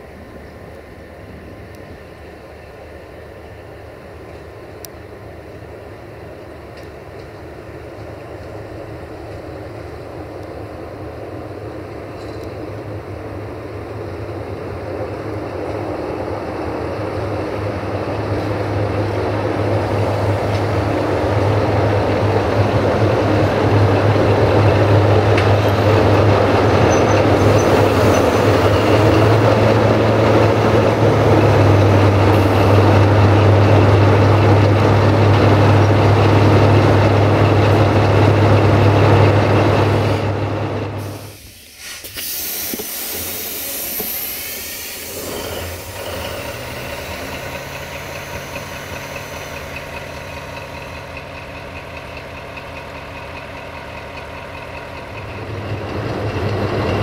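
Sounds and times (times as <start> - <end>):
diesel engine drone: 0.0 - 57.0
high hiss: 41.0 - 50.9.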